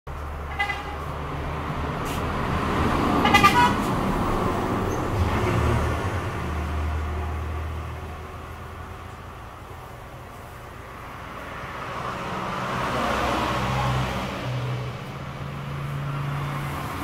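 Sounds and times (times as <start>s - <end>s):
vehicle engine rumble passing: 0.1s - 17.0s
vehicle horn toot: 0.5s - 1.1s, 3.2s - 3.8s.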